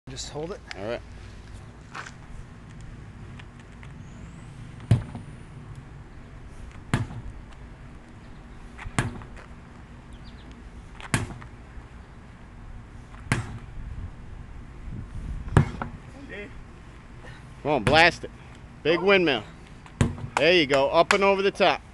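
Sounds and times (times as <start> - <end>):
sledgehammer striking a tire: 4.8 - 5.2, 6.9 - 7.3, 11.1 - 11.5, 13.3 - 13.6, 15.5 - 15.9, 20.0 - 20.4.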